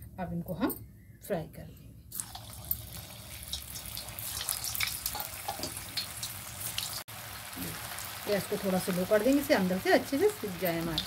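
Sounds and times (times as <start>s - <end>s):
food deep-frying in hot oil: 2.2s - 11.0s.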